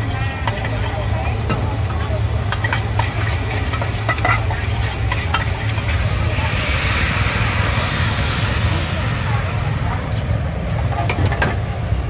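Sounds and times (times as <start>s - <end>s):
food sizzling in hot oil: 0.0s - 9.8s
low rumble: 0.0s - 12.0s
metal utensil scraping a pan: 0.1s - 6.0s.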